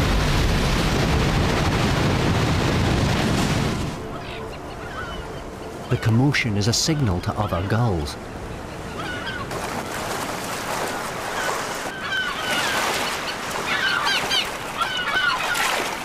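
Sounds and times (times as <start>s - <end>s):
gulls calling: 3.8s - 16.0s
splashing water: 9.4s - 16.0s.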